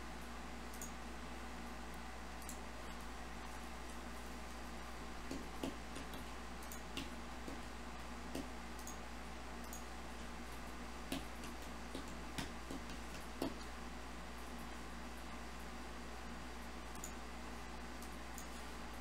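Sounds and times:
steady low hum: 0.0s - 19.0s
computer mouse clicks: 0.7s - 1.0s, 2.4s - 2.6s, 5.3s - 7.1s, 8.8s - 9.0s, 9.6s - 9.9s.

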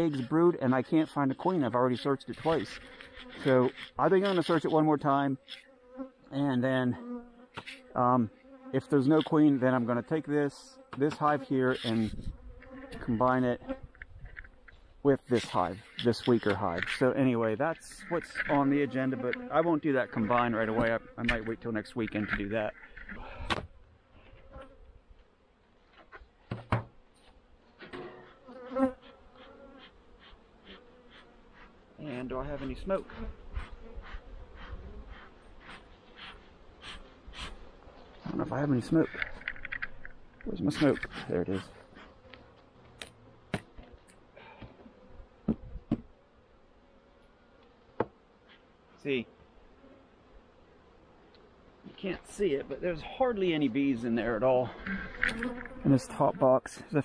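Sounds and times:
honeybees buzzing: 0.0s - 57.0s
bee flying close past: 2.0s - 4.7s, 5.3s - 6.2s, 6.9s - 14.9s, 17.7s - 21.9s, 22.7s - 25.0s, 27.8s - 53.0s, 53.6s - 56.1s
sharp knocks of hive parts: 26.5s - 27.0s, 43.0s - 43.9s, 45.4s - 46.1s, 48.0s - 48.2s.

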